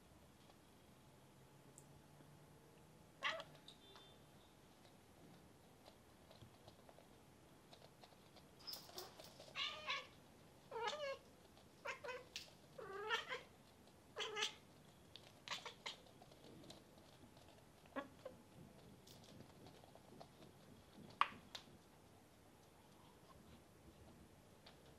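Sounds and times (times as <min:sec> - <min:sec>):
cats meowing: 0:03.2 - 0:03.6, 0:08.9 - 0:10.1, 0:10.7 - 0:11.2, 0:11.8 - 0:13.5, 0:14.2 - 0:14.6, 0:15.4 - 0:16.1.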